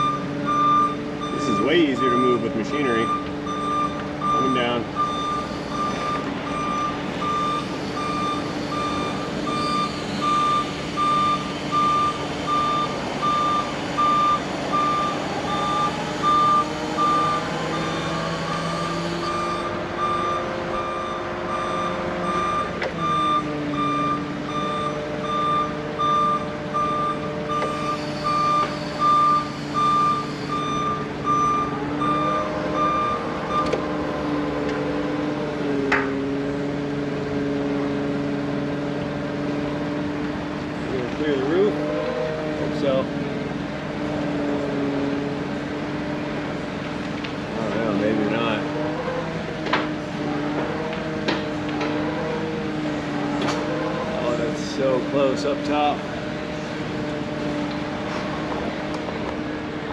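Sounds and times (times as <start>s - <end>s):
warning beeper beeping: 0.0s - 33.8s
forklift engine running: 0.0s - 59.9s.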